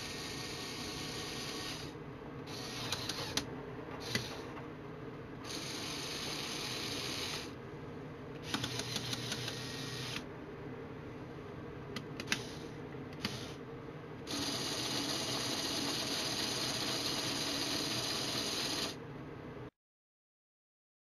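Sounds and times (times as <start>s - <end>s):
small electric motors whirring: 0.0s - 4.4s, 5.4s - 7.5s, 8.4s - 10.2s, 12.2s - 13.6s, 14.3s - 19.0s
gears clicking: 2.5s - 4.5s, 8.4s - 10.2s.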